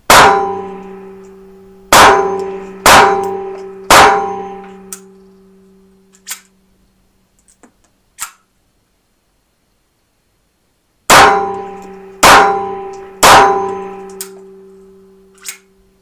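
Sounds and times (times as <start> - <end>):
pistol shots with ringing tail: 0.1 - 1.2, 1.9 - 4.9, 11.1 - 15.1.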